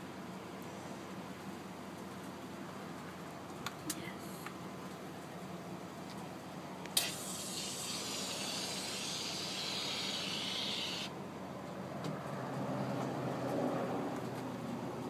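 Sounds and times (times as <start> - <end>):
fire extinguisher hissing: 7.0 - 11.1.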